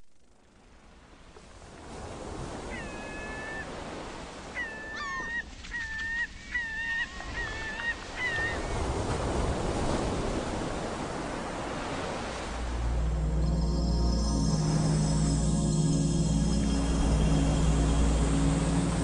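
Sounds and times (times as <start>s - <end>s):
steady rushing noise: 12.5s - 19.0s.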